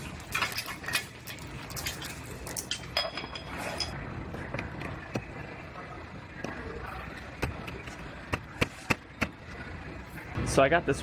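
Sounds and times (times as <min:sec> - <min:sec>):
steady shop hum: 0:00.0 - 0:11.0
parts clinking and tapping: 0:00.2 - 0:05.3.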